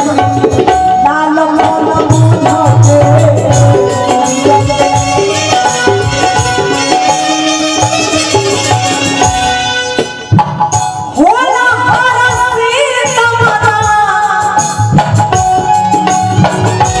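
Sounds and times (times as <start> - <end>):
woman singing into microphone: 0.0 - 7.4, 11.1 - 17.0
keyboard melody: 0.0 - 13.0, 13.8 - 17.0
hand drum beat: 13.4 - 17.0.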